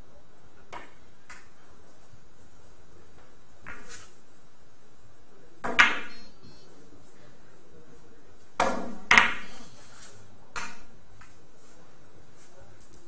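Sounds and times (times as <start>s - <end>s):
billiard balls clacking: 5.6s - 6.3s.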